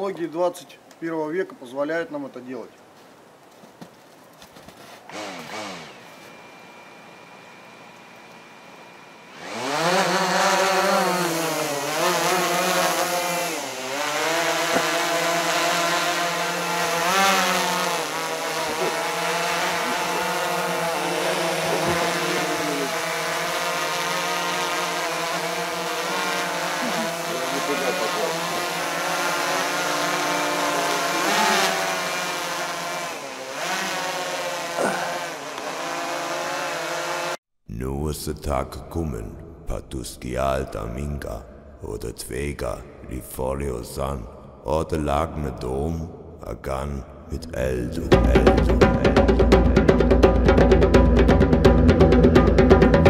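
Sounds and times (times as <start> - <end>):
drone rotors buzzing: 5.1 - 37.4.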